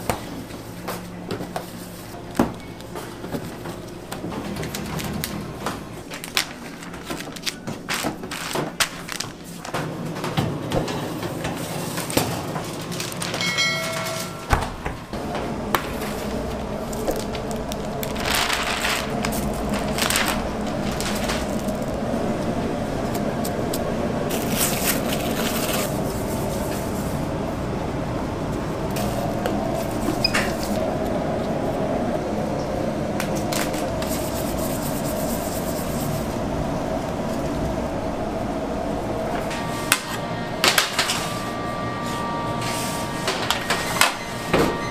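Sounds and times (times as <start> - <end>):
bakery machinery humming: 0.0 - 44.9
metal baking trays clattering: 3.1 - 21.9.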